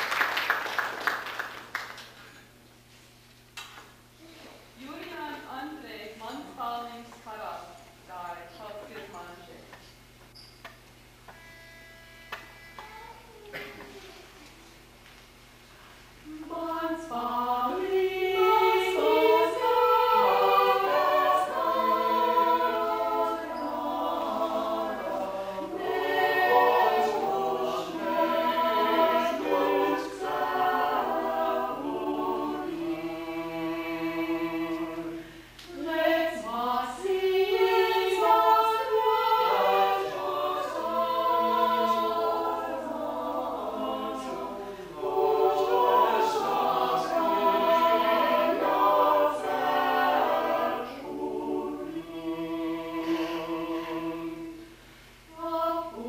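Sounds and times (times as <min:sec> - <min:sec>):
mixed choir singing a cappella: 0:16.3 - 0:56.0.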